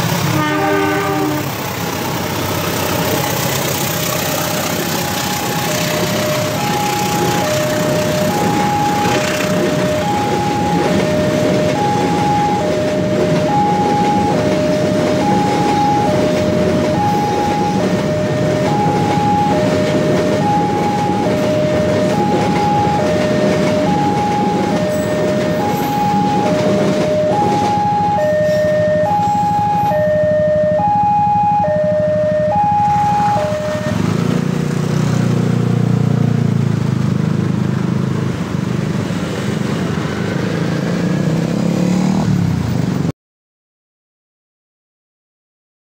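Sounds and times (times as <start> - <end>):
train clattering past: 0.0 - 30.9, 31.6 - 41.4
two-tone crossing alarm: 0.0 - 34.4
motorcycle engines: 0.0 - 43.1.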